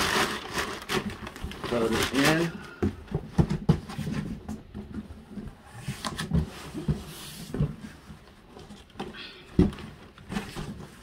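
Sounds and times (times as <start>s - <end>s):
packing paper rustling: 0.0s - 2.8s.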